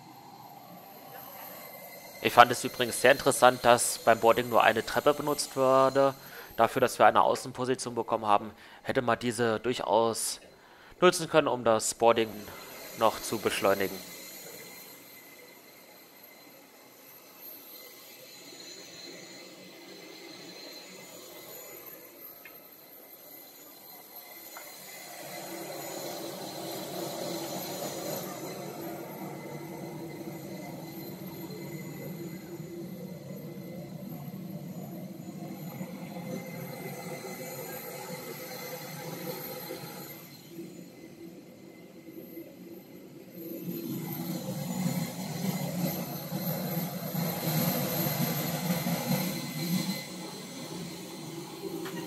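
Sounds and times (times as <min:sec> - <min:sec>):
parked airliner hum and hiss: 0:00.0 - 0:52.0
thin high whine: 0:00.0 - 0:52.0
jet aircraft rumbling hum: 0:24.7 - 0:42.0, 0:43.9 - 0:52.0.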